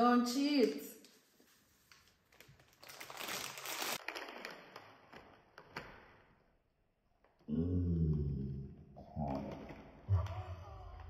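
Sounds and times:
plastic snack packet crinkling: 1.9 - 6.4.

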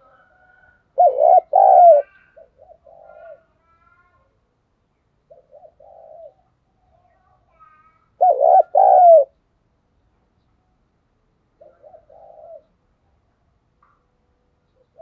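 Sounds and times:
dove cooing: 0.0 - 3.6, 5.3 - 6.5, 8.2 - 9.4, 11.6 - 12.8, 14.8 - 15.0.

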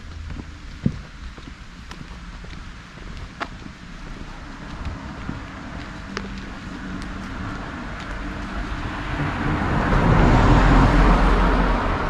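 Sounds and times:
car driving past: 4.2 - 12.0.

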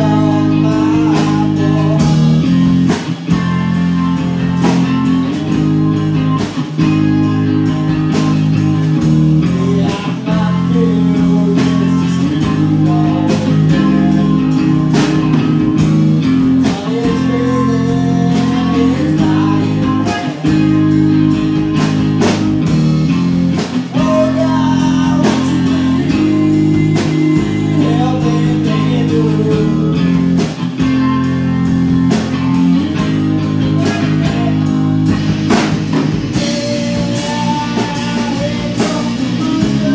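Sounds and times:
lead singer singing: 0.0 - 3.1, 9.2 - 21.3, 23.6 - 30.7, 32.3 - 39.9
drum kit: 0.0 - 39.9
electric guitar: 0.0 - 39.9.

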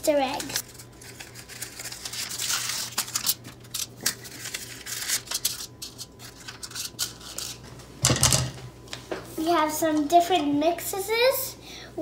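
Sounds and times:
paper liners crinkling: 0.4 - 7.6.

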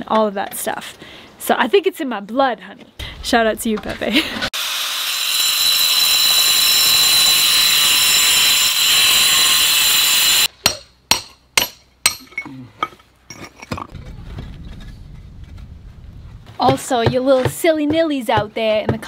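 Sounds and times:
angle grinder cutting concrete block: 4.5 - 10.5.

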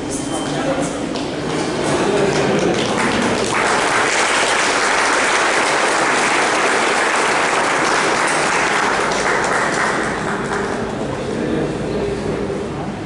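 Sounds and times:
audience applauding: 1.6 - 11.0.

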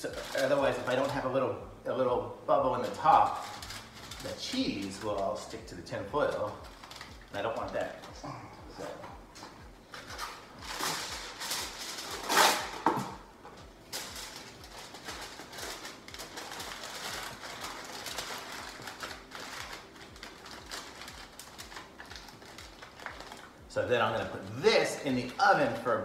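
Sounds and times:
aluminium foil tearing: 0.0 - 1.4, 2.7 - 8.2, 10.1 - 13.1, 13.9 - 23.6
foil crinkling and rustling: 0.0 - 1.4, 2.7 - 8.2, 9.9 - 13.1, 13.8 - 26.0.

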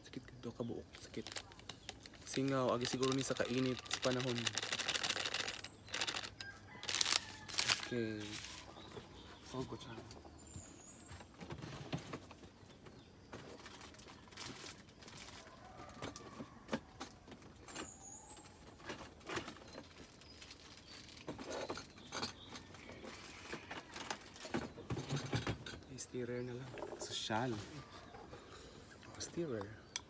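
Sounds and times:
light knocks and clatter: 21.2 - 26.0.

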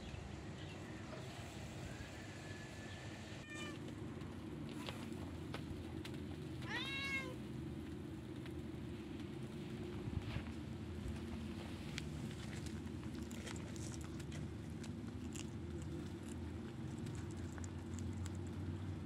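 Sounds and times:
steady low hum: 0.0 - 19.0
cat meowing: 3.4 - 3.8, 6.6 - 7.4.

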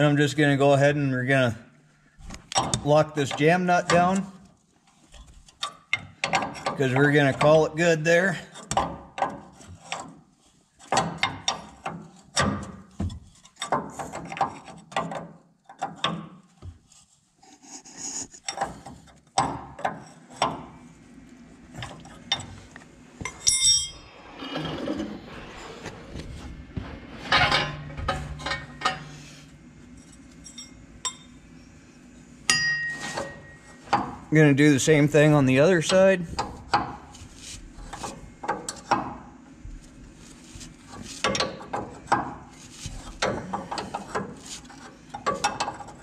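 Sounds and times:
metal tool clinks and knocks: 23.3 - 24.0.

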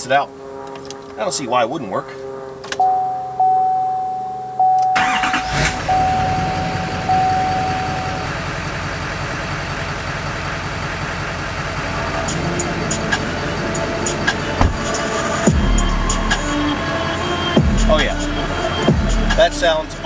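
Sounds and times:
dashboard warning chime: 2.7 - 8.3
diesel engine cranking and idling: 5.0 - 20.0.

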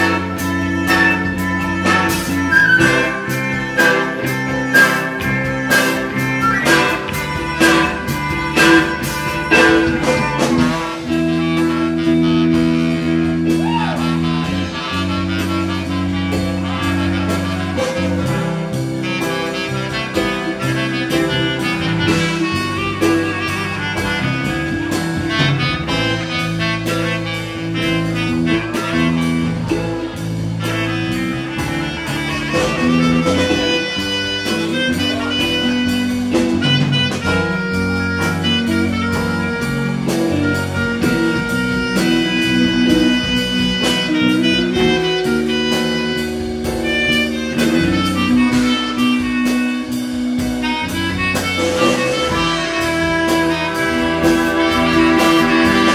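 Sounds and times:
jazz-rock ensemble playing: 0.0 - 55.9
steady drum beat: 0.0 - 55.9.

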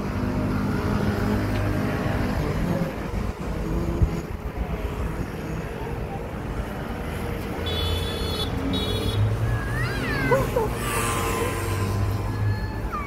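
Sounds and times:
traffic rumble: 0.0 - 13.0
high-pitched squeal: 9.4 - 13.0.

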